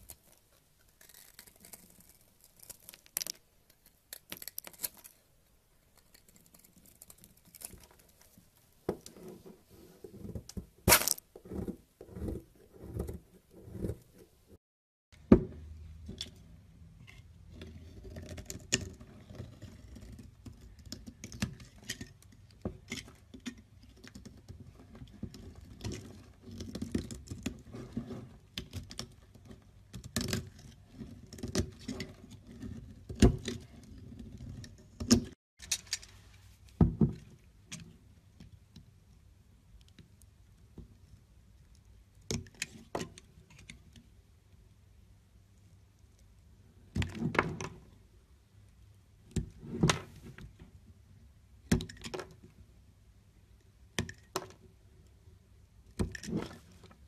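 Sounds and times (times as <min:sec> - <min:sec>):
knife carving soap: 0:00.0 - 0:14.6, 0:16.0 - 0:36.1.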